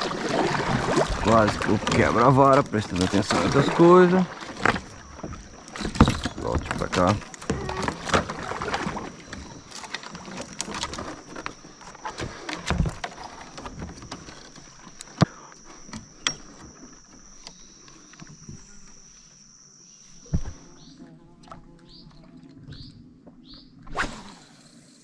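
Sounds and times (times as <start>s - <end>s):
paddle knocking plastic hull: 0.0s - 17.6s
paddle strokes and splashes: 0.0s - 19.2s.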